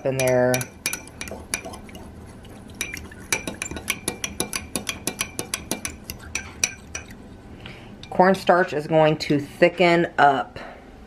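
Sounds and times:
fork clinking against glass bowl: 0:00.0 - 0:02.0, 0:02.8 - 0:07.2.

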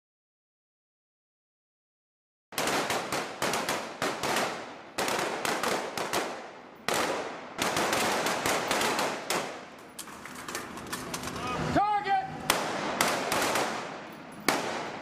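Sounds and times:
pistols firing rapidly: 0:02.6 - 0:09.7, 0:12.5 - 0:15.0.

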